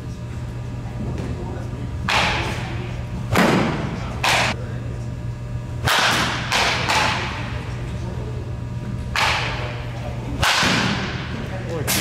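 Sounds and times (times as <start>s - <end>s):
balls hitting cage: 2.0s - 4.6s, 5.8s - 7.6s, 9.0s - 12.0s
bat cracking on ball: 5.8s - 7.4s, 9.1s - 9.7s, 10.4s - 11.3s.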